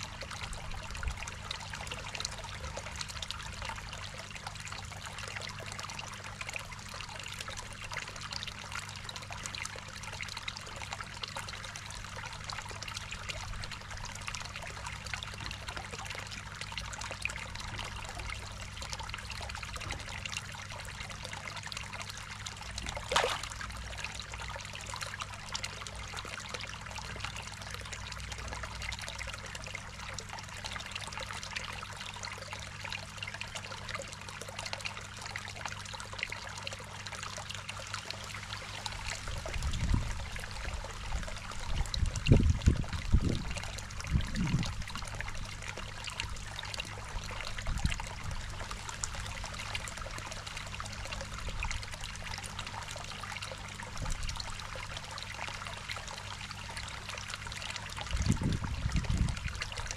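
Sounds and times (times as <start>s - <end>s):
low steady hum: 0.0s - 59.9s
water trickling into a pond: 0.0s - 59.9s
water splash: 22.8s - 23.8s.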